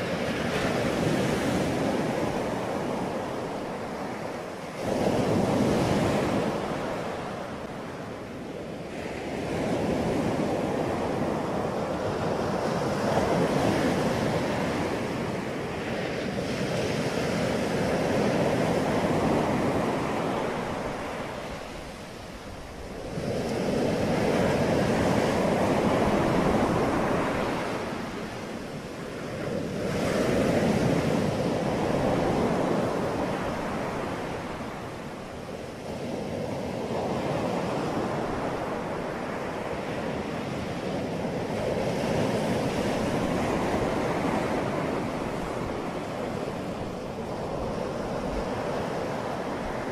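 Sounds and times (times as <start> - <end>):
rushing surf-like noise: 0.0 - 49.9.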